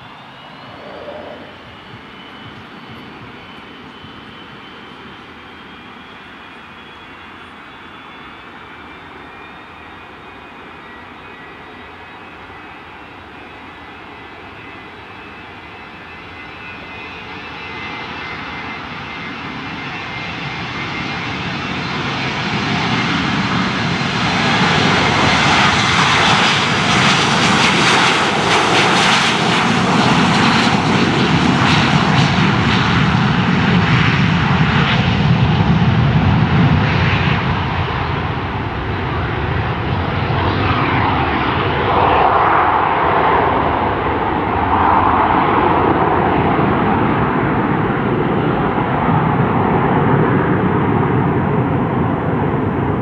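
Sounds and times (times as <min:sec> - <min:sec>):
jet engines at takeoff: 0:00.0 - 0:53.0.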